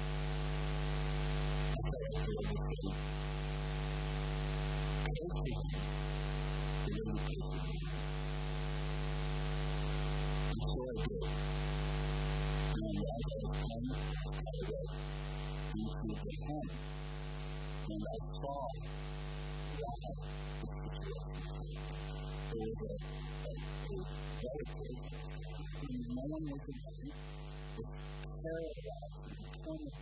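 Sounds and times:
electrical mains hum: 0:00.0 - 0:30.0
faint pitched sounds: 0:15.6 - 0:18.9, 0:19.6 - 0:30.0.

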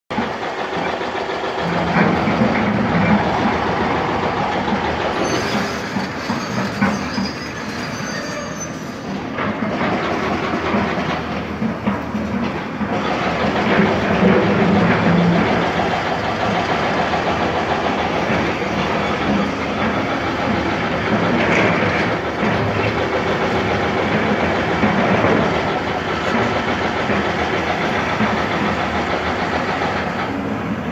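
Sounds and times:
diesel engine drone: 0:00.1 - 0:06.3, 0:09.1 - 0:30.9
faint metallic squeal: 0:05.1 - 0:09.1.

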